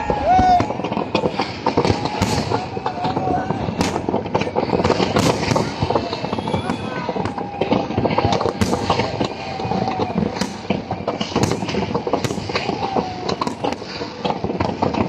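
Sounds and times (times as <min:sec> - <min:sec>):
fireworks bangs: 0:00.0 - 0:15.0
fireworks crackling pops: 0:00.0 - 0:15.0.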